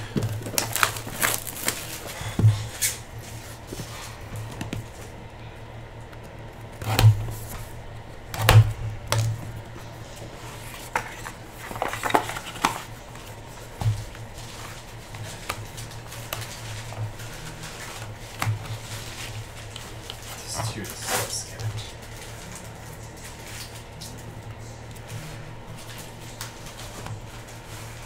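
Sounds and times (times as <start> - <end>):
packaging rustling: 0.0 - 5.2, 9.2 - 24.0
low steady hum: 0.0 - 28.0.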